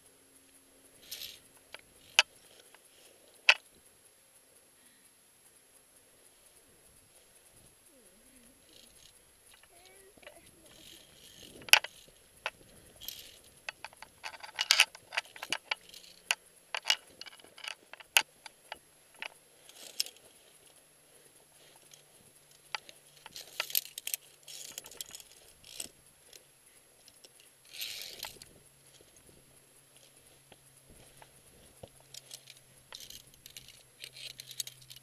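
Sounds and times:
metal climbing gear clinking: 0:01.0 - 0:03.8, 0:08.6 - 0:35.0.

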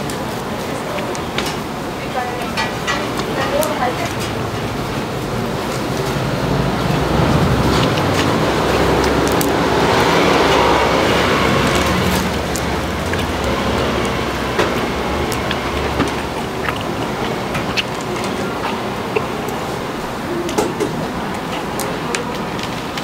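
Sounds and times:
vehicle engine passing by: 0:05.4 - 0:19.7.

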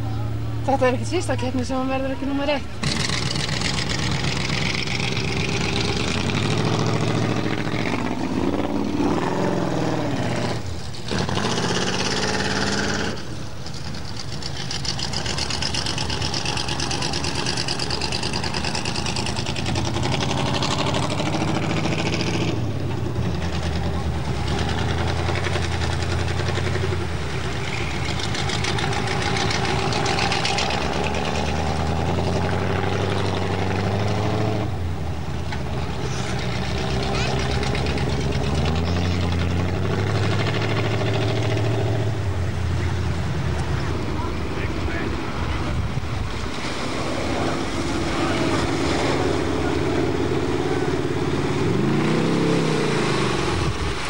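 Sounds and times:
water churning and splashing: 0:01.0 - 0:54.0
van engine revving: 0:02.7 - 0:54.0.

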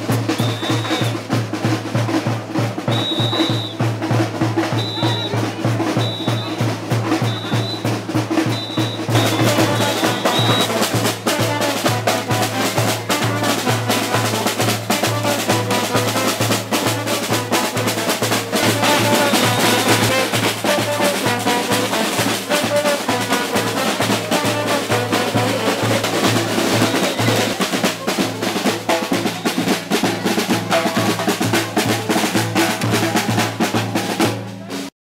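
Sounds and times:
bass drum beat: 0:00.0 - 0:34.9
snare drum strokes: 0:00.0 - 0:34.9
street band playing: 0:00.0 - 0:34.9
trombone and saxophone melody: 0:08.4 - 0:34.2.

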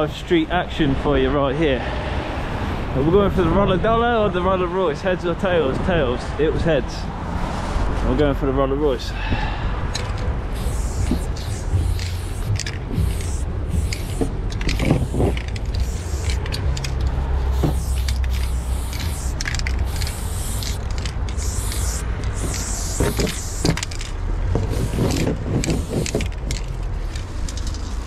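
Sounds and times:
steady low rumble: 0:09.1 - 0:28.0
spray-paint can hissing: 0:10.0 - 0:26.7.

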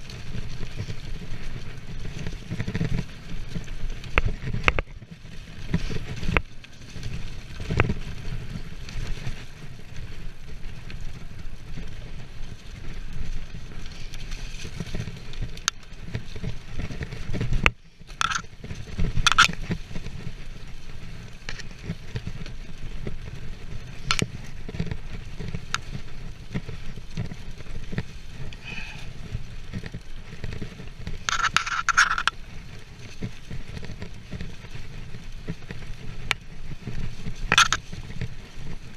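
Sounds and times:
bike knocks and rattles: 0:00.0 - 0:38.9
bike tyres rolling over leaves: 0:00.0 - 0:38.9
harsh scraping: 0:13.4 - 0:20.1, 0:23.5 - 0:32.4, 0:35.7 - 0:38.2.

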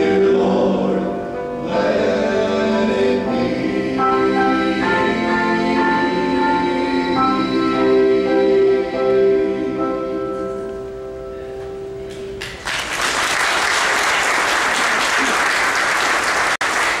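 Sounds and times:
gospel chord held: 0:00.0 - 0:12.3
congregation applauding: 0:12.1 - 0:17.0.

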